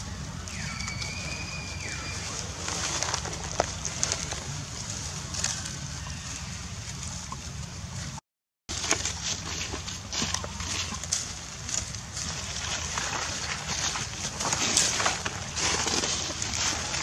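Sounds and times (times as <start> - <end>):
high whistled call: 0.0 - 3.0
steady low rumble: 0.0 - 17.0.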